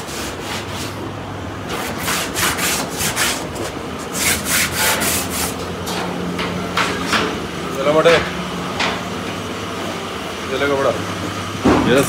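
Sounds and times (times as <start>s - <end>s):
wood scraping strokes: 1.7s - 5.6s.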